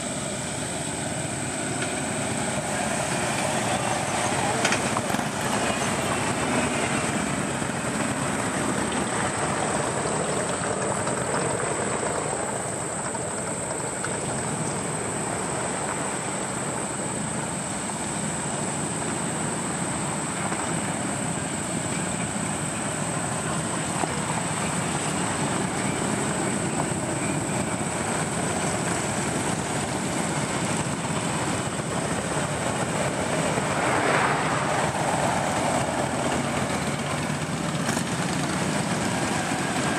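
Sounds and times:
motorcycles riding past: 0:31.9 - 0:39.9.

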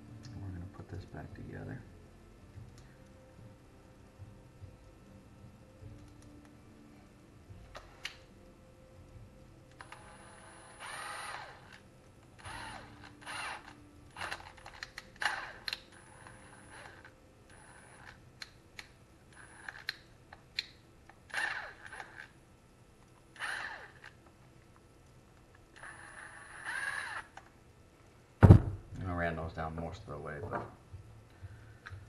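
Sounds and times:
impact driver whirring: 0:09.8 - 0:11.8, 0:12.4 - 0:17.1, 0:21.3 - 0:22.3, 0:23.4 - 0:24.1, 0:25.8 - 0:27.4.

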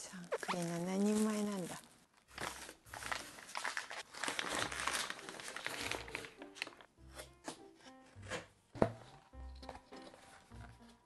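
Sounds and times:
packaging crinkling and rustling: 0:00.0 - 0:06.9
background music: 0:00.3 - 0:11.0.

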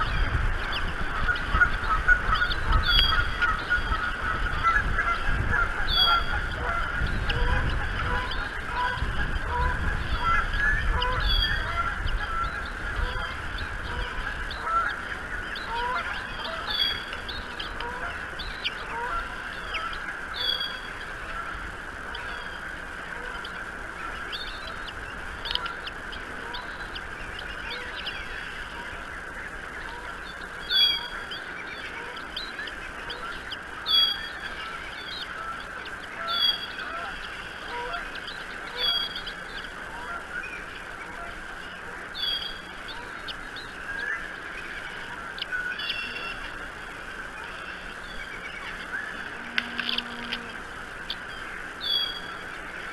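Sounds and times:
geese honking: 0:00.0 - 0:52.9
high-pitched bird chirps: 0:19.6 - 0:20.8.

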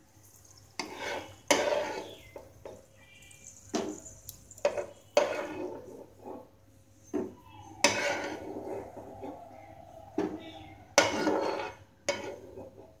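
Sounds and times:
steel spoon scraping a frying pan: 0:00.8 - 0:02.5, 0:03.2 - 0:06.5, 0:07.8 - 0:09.4, 0:11.0 - 0:13.0.

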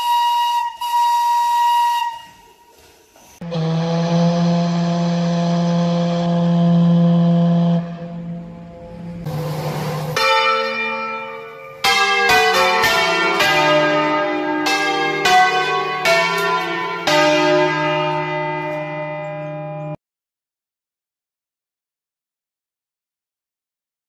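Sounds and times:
church bells ringing: 0:07.4 - 0:20.0.

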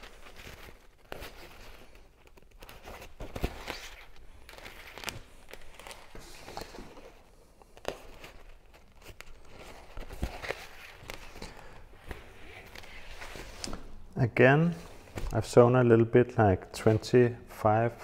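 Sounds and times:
rustling: 0:00.0 - 0:14.1.

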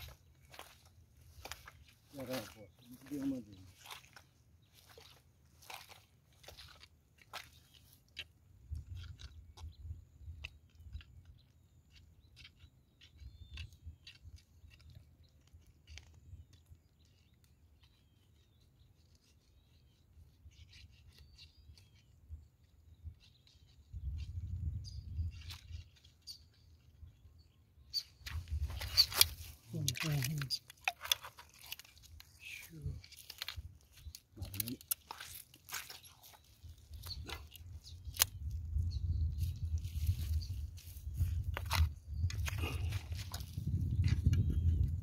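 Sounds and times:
faint bird chirps: 0:00.0 - 0:06.7, 0:08.9 - 0:30.7, 0:31.8 - 0:43.0
mesh bag rustling: 0:28.6 - 0:37.8.

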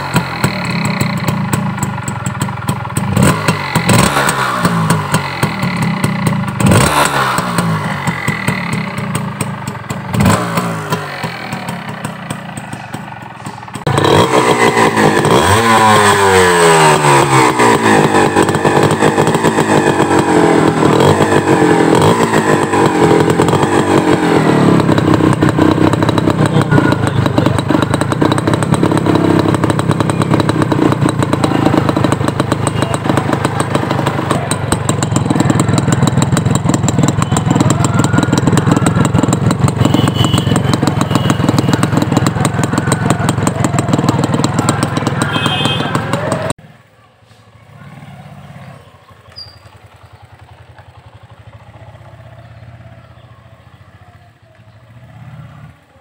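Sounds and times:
motorcycle engine starting and idling: 0:00.0 - 0:56.0.

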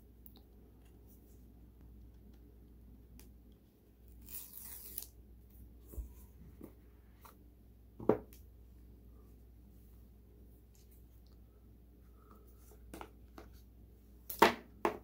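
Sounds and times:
paper strip tearing: 0:04.1 - 0:05.2.

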